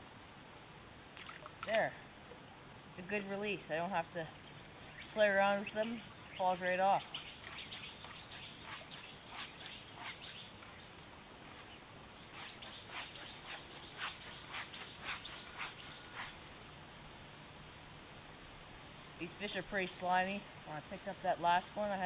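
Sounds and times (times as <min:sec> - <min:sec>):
small songbirds chirping: 0:04.4 - 0:16.9.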